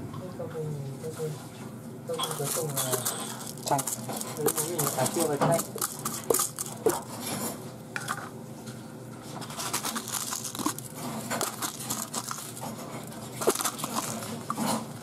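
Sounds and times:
plastic glove crinkling: 2.1s - 7.3s, 9.3s - 15.0s.

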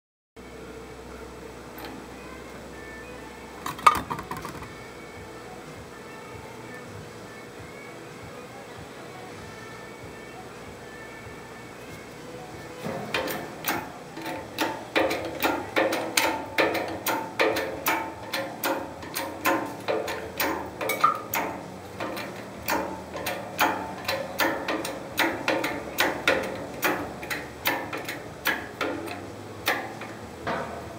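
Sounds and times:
sharp metallic clanks: 12.8s - 30.9s.

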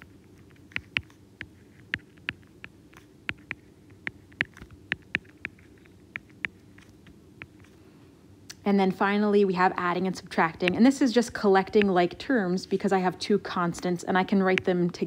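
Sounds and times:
stylus tapping on tablet screen: 0.0s - 7.8s, 10.2s - 12.8s
faint low hum: 0.0s - 15.0s.

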